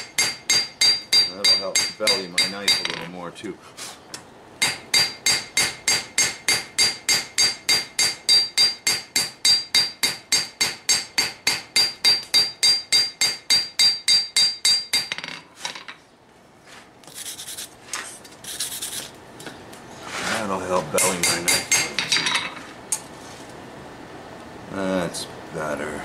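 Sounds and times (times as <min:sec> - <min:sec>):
hammer ringing on anvil: 0:00.2 - 0:03.0, 0:04.6 - 0:15.2, 0:21.0 - 0:22.4.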